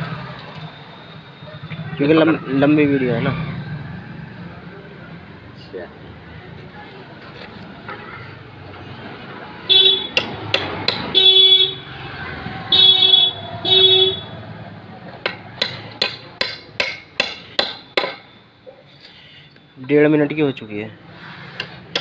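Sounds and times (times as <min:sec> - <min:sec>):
vehicle horn toots: 0:09.7 - 0:10.2, 0:11.1 - 0:11.9, 0:12.7 - 0:14.4
hammer striking nail into wood: 0:10.1 - 0:11.1, 0:15.2 - 0:18.3, 0:21.6 - 0:22.0.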